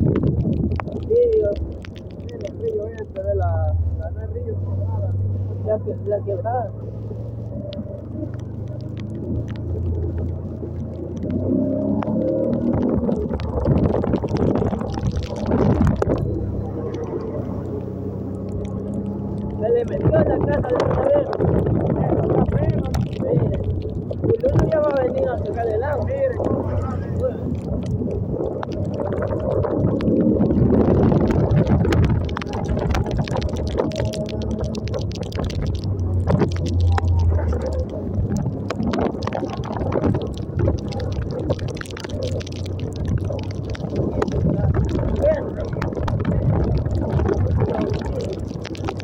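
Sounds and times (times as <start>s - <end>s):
wind on microphone: 0.0s - 4.0s, 7.0s - 49.0s
motorcycle engine hum: 0.0s - 49.0s
raindrops tapping: 0.0s - 49.0s
tyres splashing through puddles: 0.0s - 49.0s.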